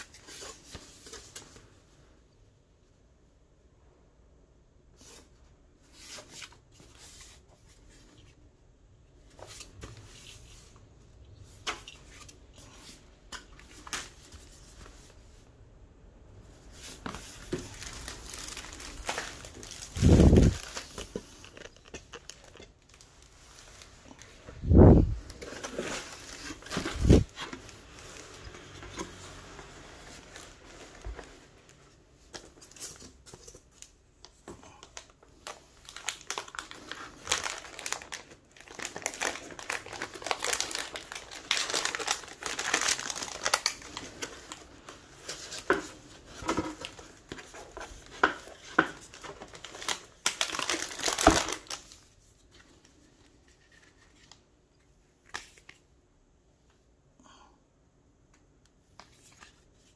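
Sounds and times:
packaging crinkling and rustling: 16.5s - 54.4s.

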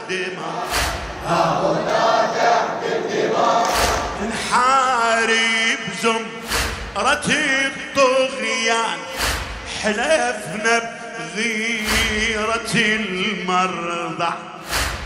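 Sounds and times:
man singing into a microphone: 0.0s - 0.7s, 4.2s - 14.7s
men chanting in unison: 0.0s - 15.0s
chest-beating thumps: 3.7s - 4.4s, 6.4s - 7.4s, 11.8s - 12.6s, 14.6s - 15.0s.

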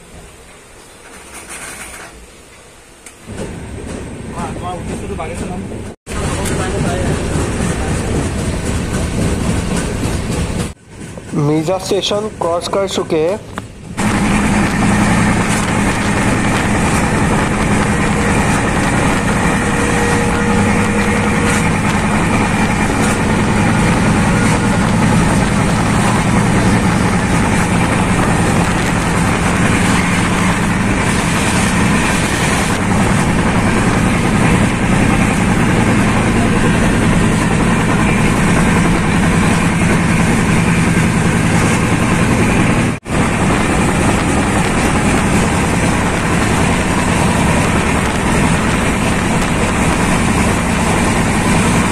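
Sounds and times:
train rumble and rail noise: 0.0s - 51.9s
low hum: 13.6s - 51.9s.

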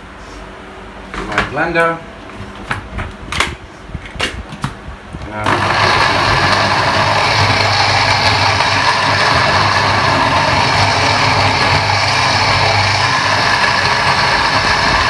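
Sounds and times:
blender motor grinding: 5.4s - 15.0s.

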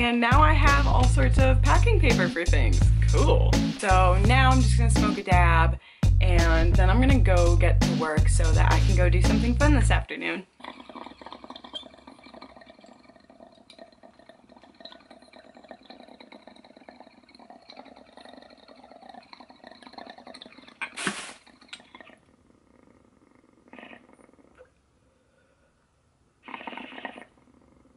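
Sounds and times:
water bubbling in glass pipe: 10.6s - 22.3s.

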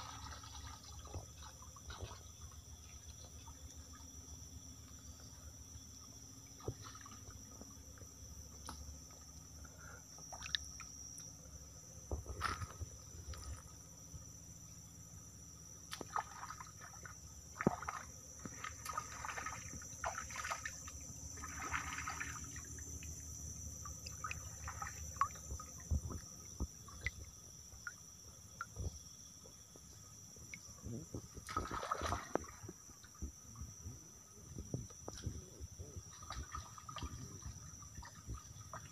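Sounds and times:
insect chorus: 0.0s - 38.9s
hand splashing in stream water: 15.9s - 22.7s, 24.0s - 25.6s, 31.4s - 32.7s.

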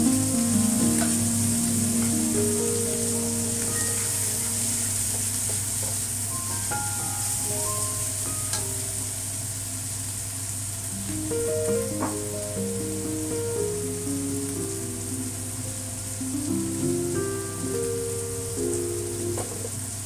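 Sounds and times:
background music: 0.0s - 5.2s
food sizzling in a wok: 0.1s - 20.0s.

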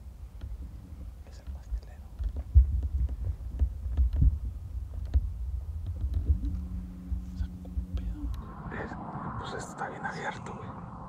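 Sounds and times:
low rumbling and thumping: 0.0s - 11.0s
steady low hum: 0.0s - 11.0s
light clicks: 1.3s - 4.3s.

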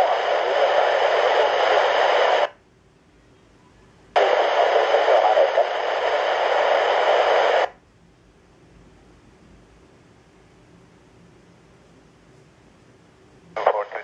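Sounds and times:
radio static hissing: 0.0s - 2.6s, 4.1s - 7.8s, 13.5s - 14.0s.

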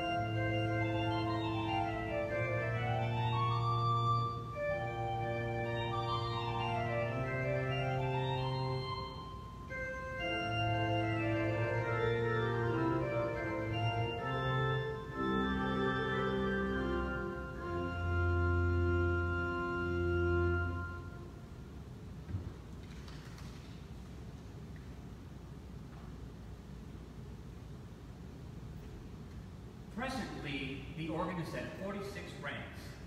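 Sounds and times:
pipe organ chords: 0.0s - 21.9s.

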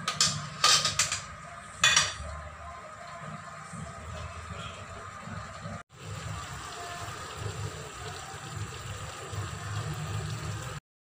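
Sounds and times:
food bubbling in a wok: 3.3s - 10.8s.

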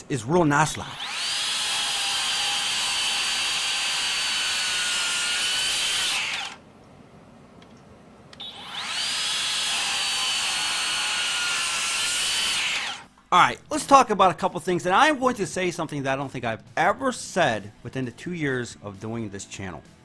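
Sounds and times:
circular saw whining: 0.7s - 6.6s, 8.4s - 13.2s.

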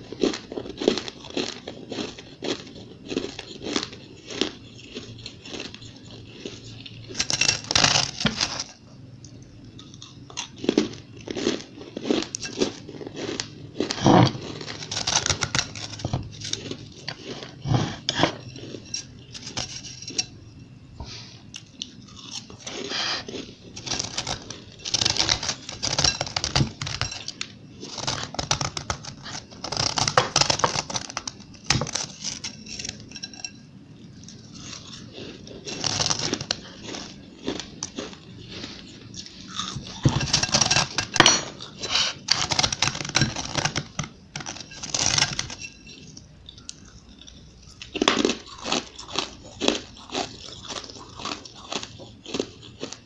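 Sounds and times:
fingers crunching ice in a bowl: 0.0s - 8.8s, 9.8s - 20.3s, 22.2s - 33.6s, 34.2s - 53.0s
chewing ice: 0.0s - 20.3s, 21.5s - 33.4s, 34.2s - 53.0s.

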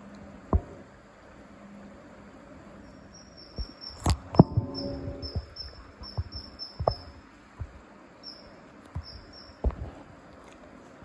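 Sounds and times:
knocks and clunks: 0.5s - 0.9s.

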